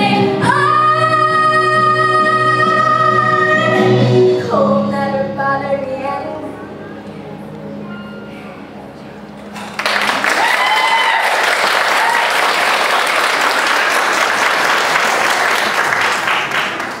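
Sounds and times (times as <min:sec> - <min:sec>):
audience applauding: 0:09.6 - 0:17.0
person whooping: 0:10.3 - 0:12.6.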